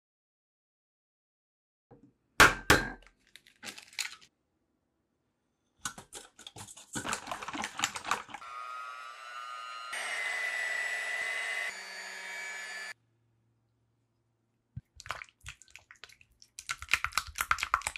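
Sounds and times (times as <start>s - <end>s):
electric hand mixer whine: 8.4s - 13.0s.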